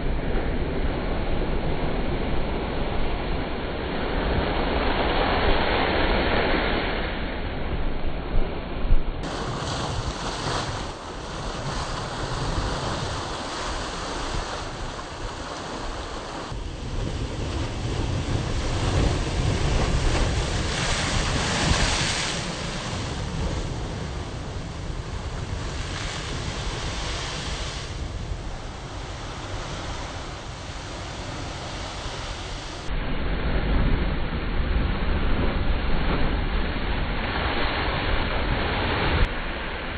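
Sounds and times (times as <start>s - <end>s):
wind buffeting microphone: 7.9s - 39.3s
ocean waves crashing on rocks: 9.2s - 32.9s.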